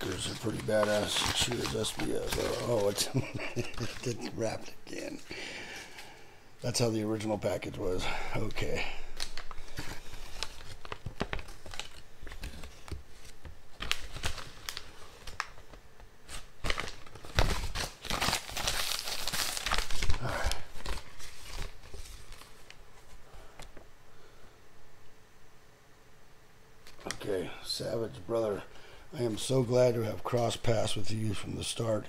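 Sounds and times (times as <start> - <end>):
packaging tearing: 0.0 - 5.2, 8.4 - 22.8
plastic wrap crinkling: 0.0 - 23.8.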